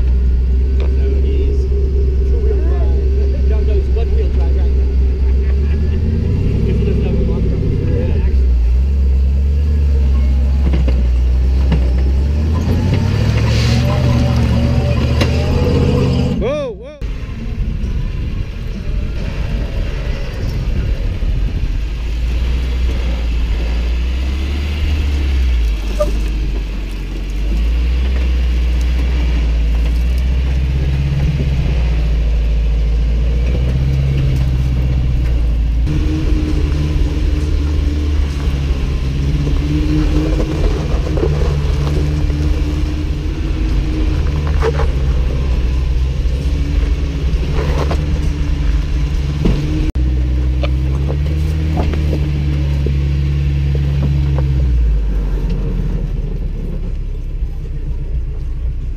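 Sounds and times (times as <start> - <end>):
truck engine at low revs: 0.0 - 58.9.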